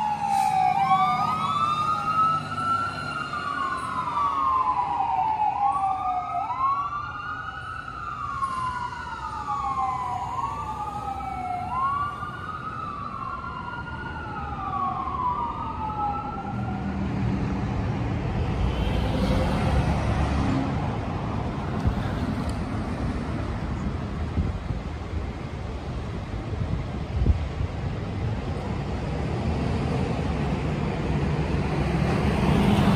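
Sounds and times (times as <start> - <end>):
fire truck siren wailing: 0.0 - 21.4
passing vehicle engine and tyres: 0.0 - 32.9.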